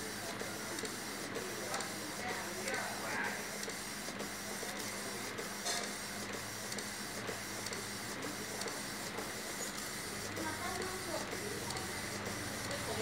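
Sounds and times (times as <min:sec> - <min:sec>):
printer humming and hissing: 0:00.0 - 0:13.0
printer soft ticks: 0:05.8 - 0:13.0.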